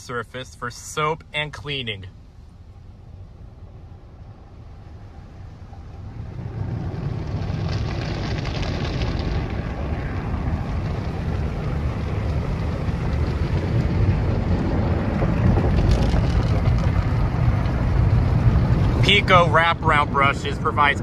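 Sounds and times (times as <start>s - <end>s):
car wash brushes scrubbing car: 5.8s - 20.9s.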